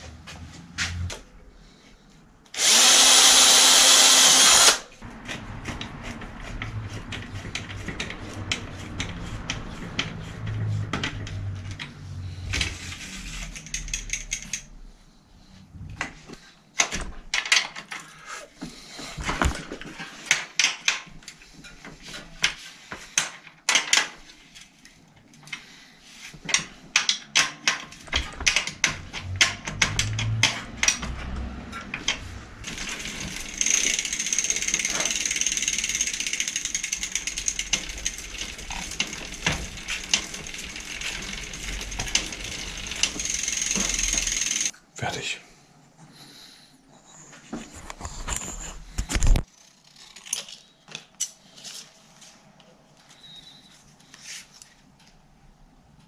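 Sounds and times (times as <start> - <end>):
power drill running: 2.6 - 4.9
metallic clicks and rattles: 13.4 - 14.7, 26.5 - 44.7.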